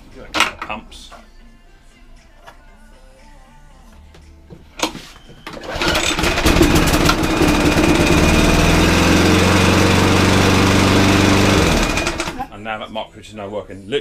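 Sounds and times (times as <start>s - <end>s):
lawnmower engine running: 5.6s - 12.4s.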